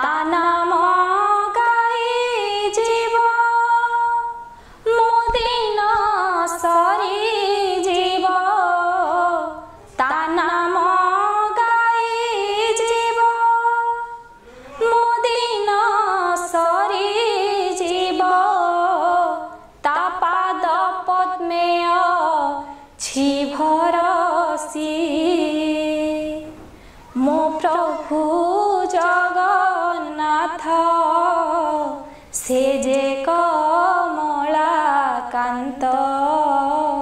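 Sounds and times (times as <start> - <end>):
woman singing unaccompanied: 0.0 - 37.0
singer breathing: 4.5 - 4.9, 14.4 - 14.8, 26.7 - 27.1, 32.0 - 32.4.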